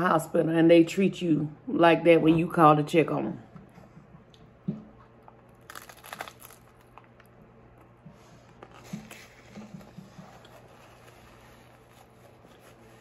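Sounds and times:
crunching food: 5.0 - 12.2.

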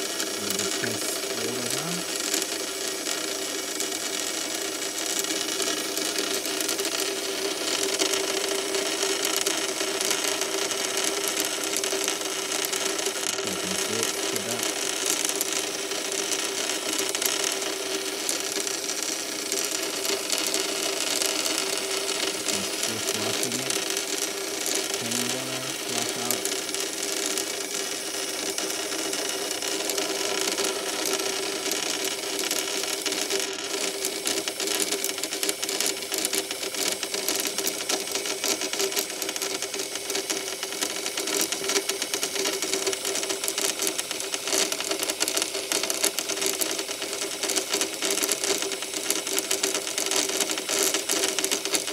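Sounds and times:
motor humming with rapid ticking: 0.0 - 51.9.

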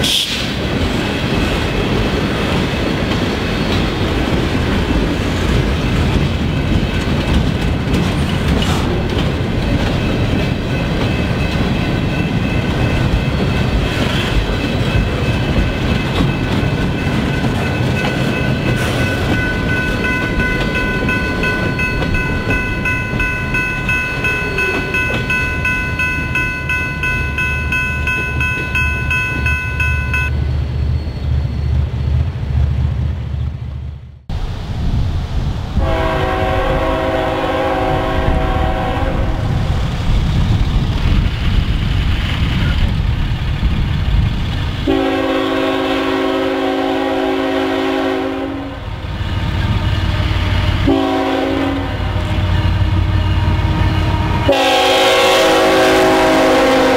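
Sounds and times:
freight cars rumbling: 0.0 - 44.9
locomotive engine and wheels: 0.0 - 56.9
crossing bell ringing: 9.3 - 30.4
locomotive air horn: 35.8 - 39.5, 44.8 - 56.9.

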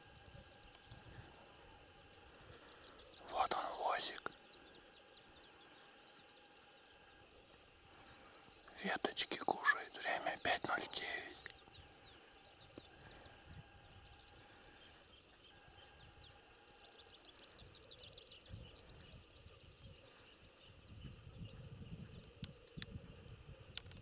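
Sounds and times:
faint songbirds chirping: 0.0 - 24.0
wind rumble on microphone: 12.8 - 14.4, 17.6 - 24.0.

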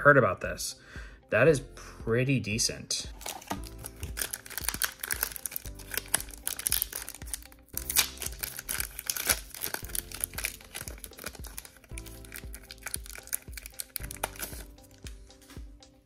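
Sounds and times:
background music: 0.0 - 16.0
foil wrapper crinkling and tearing: 3.2 - 15.0.

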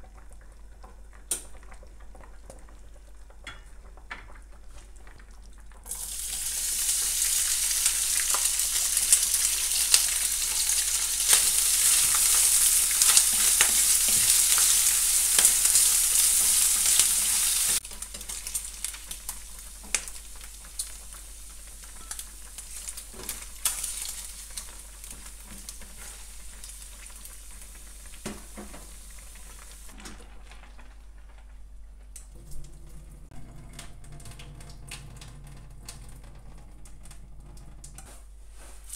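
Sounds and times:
bacon sizzling in frying pan: 5.8 - 30.0.

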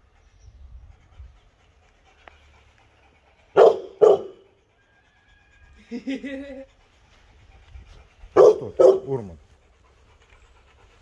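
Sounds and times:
dog barking: 3.6 - 4.4, 8.4 - 9.4.

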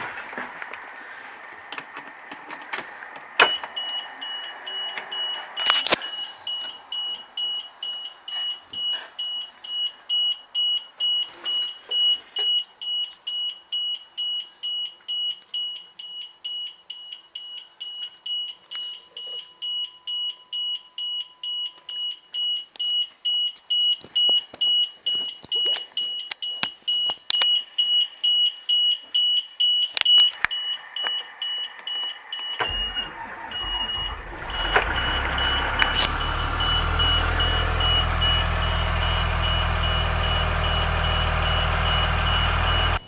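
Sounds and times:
warning buzzer beeping: 32.4 - 43.0.

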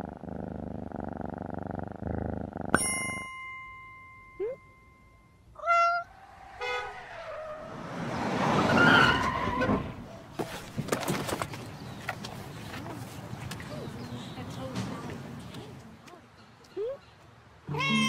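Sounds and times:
cat meowing: 5.6 - 6.2, 17.7 - 18.0.

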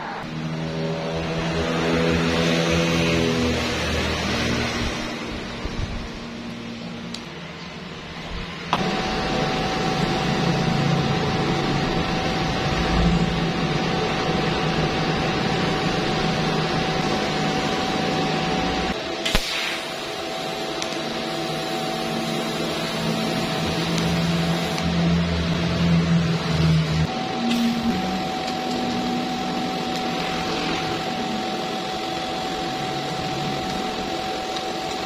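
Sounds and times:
welding arc hissing: 0.2 - 35.0
welder click: 19.2 - 19.8.

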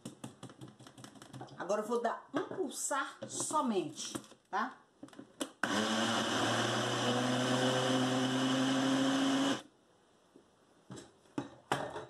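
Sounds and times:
blender motor: 5.6 - 9.6.

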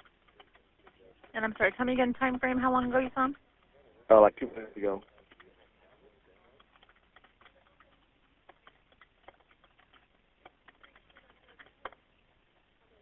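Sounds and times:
typing on computer keyboard: 0.0 - 1.9, 4.9 - 5.7, 6.4 - 12.2.

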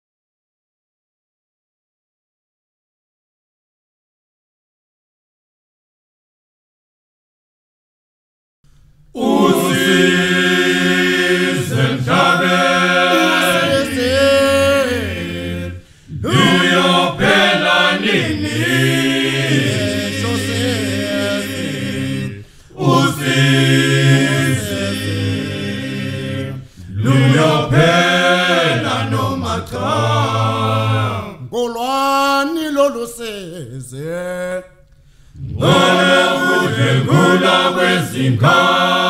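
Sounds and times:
group singing a chant: 9.1 - 31.6, 34.2 - 39.0.

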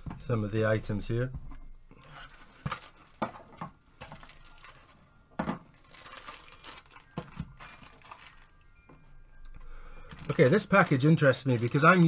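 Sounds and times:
plastic bags crinkling: 2.0 - 8.6, 10.0 - 12.0.

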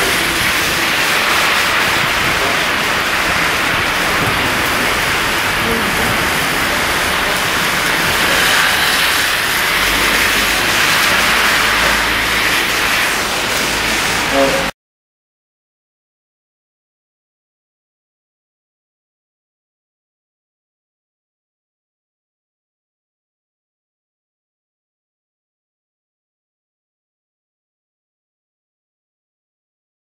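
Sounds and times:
cars driving on wet road: 0.0 - 14.7
heavy rain on flooded road: 0.0 - 14.7.

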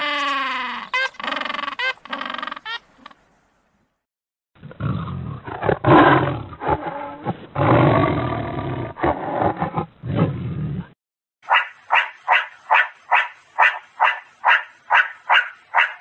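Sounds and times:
big cat roaring and growling: 4.6 - 11.0.

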